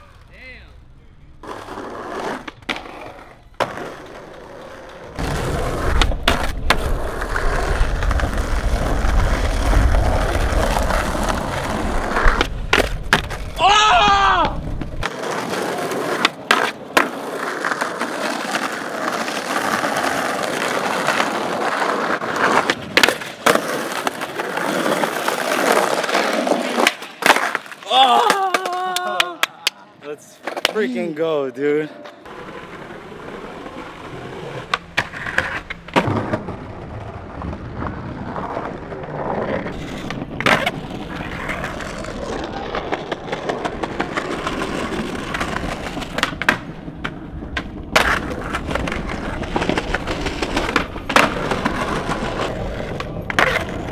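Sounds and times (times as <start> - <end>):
skateboard wheels rolling on pavement: 0.0 - 53.9
skateboard popping and landing: 1.4 - 29.8, 30.4 - 30.9, 32.2 - 53.9.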